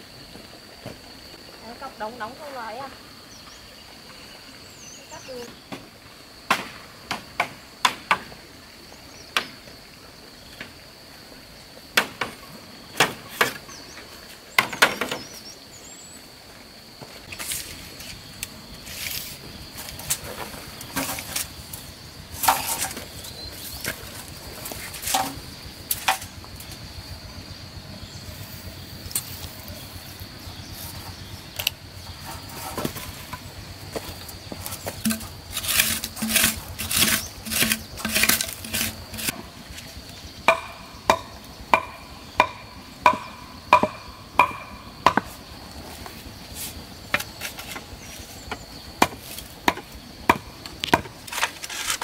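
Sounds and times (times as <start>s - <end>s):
blade chopping wood: 34.9s - 39.5s.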